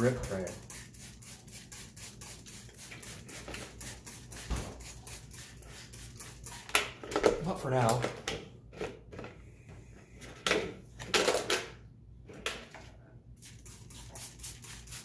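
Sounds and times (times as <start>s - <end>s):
spray bottle misting: 0.0s - 6.8s, 13.4s - 15.0s.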